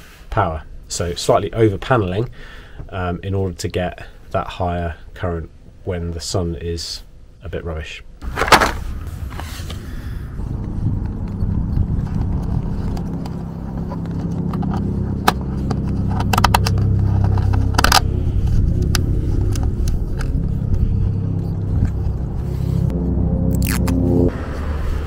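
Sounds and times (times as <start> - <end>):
steady low rumble: 8.1 - 25.0.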